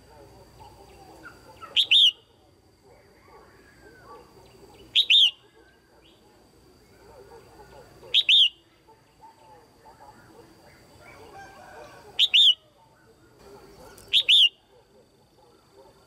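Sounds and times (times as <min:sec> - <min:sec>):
bird double-note calls: 0:01.2 - 0:02.3, 0:04.9 - 0:05.4, 0:08.1 - 0:08.6, 0:12.2 - 0:12.6, 0:14.1 - 0:14.7.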